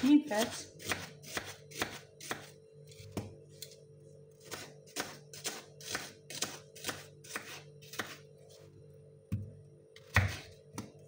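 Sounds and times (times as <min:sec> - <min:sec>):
knife slicing onion on wooden board: 0:00.0 - 0:03.3, 0:04.4 - 0:08.2, 0:10.0 - 0:11.0.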